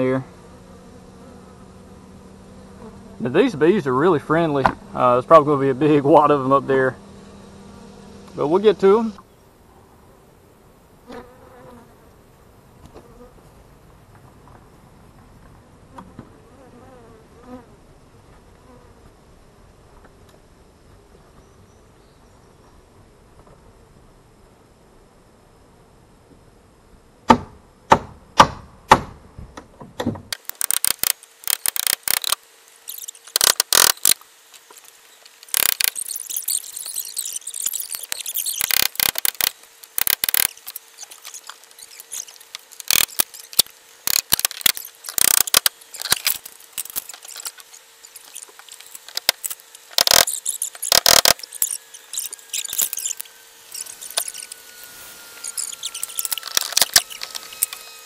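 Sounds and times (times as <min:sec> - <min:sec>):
nails squeaking: 0:30.3 - 0:57.9
wood knocking and cracking: 0:33.3 - 0:36.0, 0:44.1 - 0:47.7, 0:48.4 - 0:51.5.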